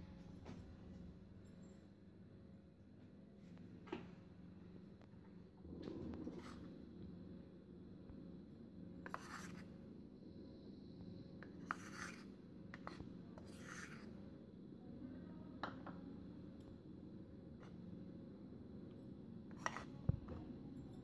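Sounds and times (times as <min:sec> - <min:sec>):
spoon scraping powder: 0:06.2 - 0:06.8, 0:09.0 - 0:09.8, 0:11.3 - 0:14.3, 0:19.5 - 0:20.0.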